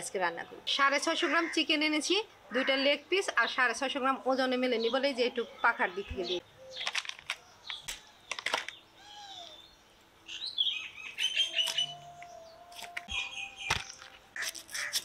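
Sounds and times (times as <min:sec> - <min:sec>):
birds chirping: 0:02.5 - 0:15.0.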